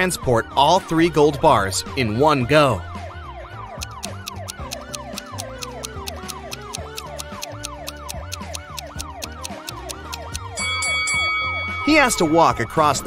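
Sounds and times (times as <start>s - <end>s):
rapid even ticks: 3.8s - 10.5s.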